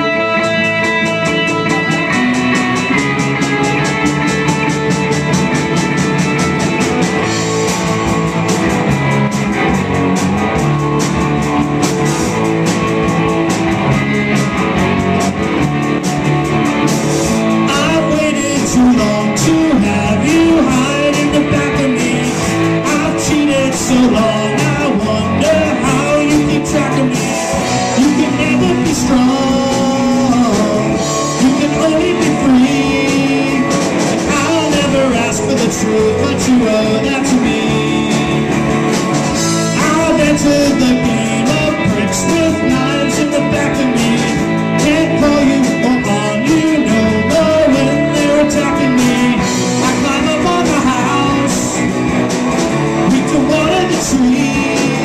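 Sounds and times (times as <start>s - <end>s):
drum kit with cymbals: 0.0s - 55.0s
electric guitars: 0.0s - 55.0s
man singing: 17.4s - 55.0s.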